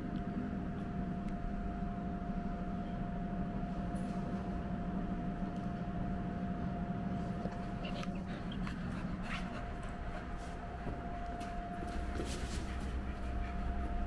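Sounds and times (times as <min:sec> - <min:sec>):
machine hum with high whine: 0:00.0 - 0:14.0.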